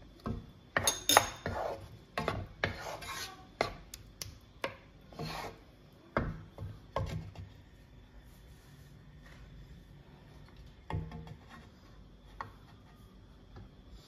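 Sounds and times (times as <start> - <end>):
spatula scraping and knocking pan: 0.2 - 3.9, 4.6 - 7.6, 10.8 - 13.2.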